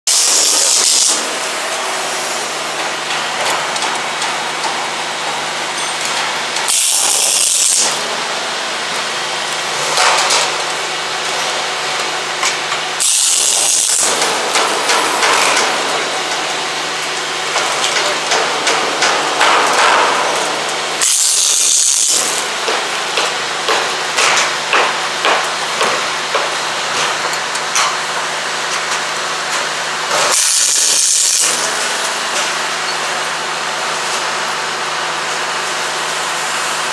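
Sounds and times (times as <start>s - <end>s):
welding gun crackling arc: 0.1s - 1.6s, 6.5s - 8.2s, 12.4s - 26.0s, 30.2s - 32.2s.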